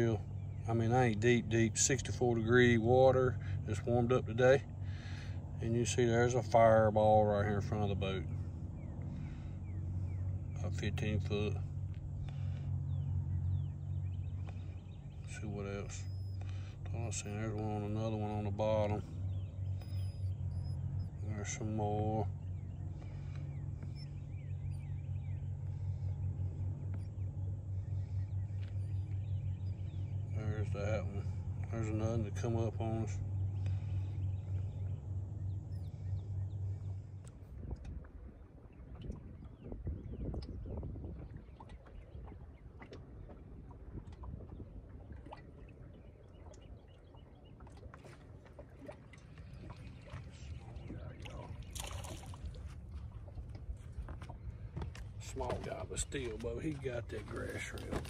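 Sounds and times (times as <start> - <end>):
boat motor humming: 0.0 - 58.0
faint bird chirps: 8.2 - 37.6
fish splash: 51.5 - 52.7.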